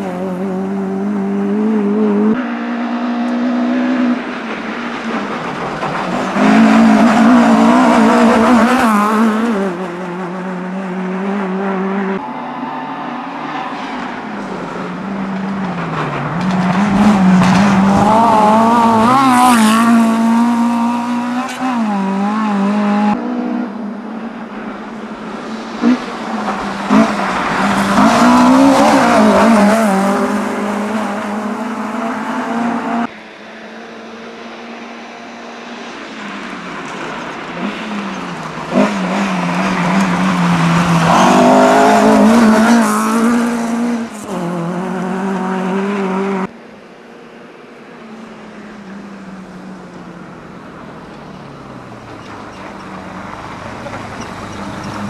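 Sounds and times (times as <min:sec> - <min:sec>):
rally car engines revving: 0:00.0 - 0:46.6.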